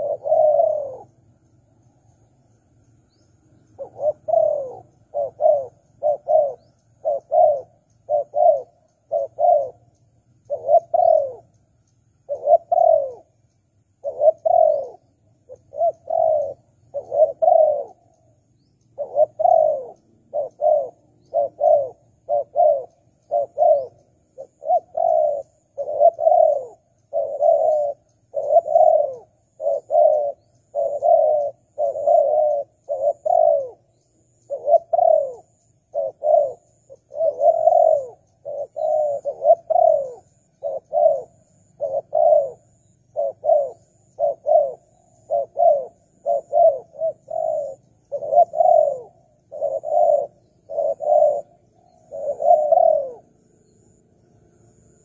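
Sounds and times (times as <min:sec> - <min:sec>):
dove cooing: 0:00.0 - 0:54.0.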